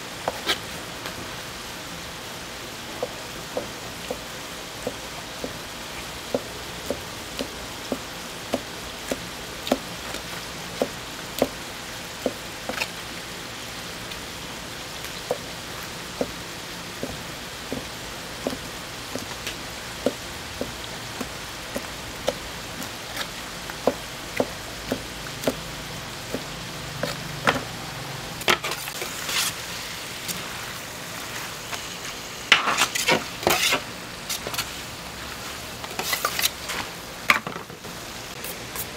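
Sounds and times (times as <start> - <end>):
meat sizzling on griddle: 0.0 - 38.9.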